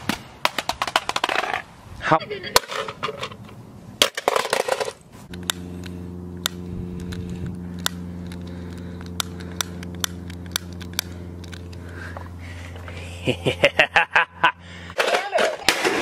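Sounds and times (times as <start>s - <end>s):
low hum: 3.2s - 15.1s.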